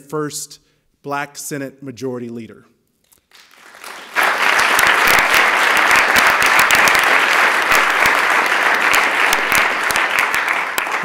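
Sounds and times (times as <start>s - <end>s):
crowd applauding: 3.3s - 11.0s.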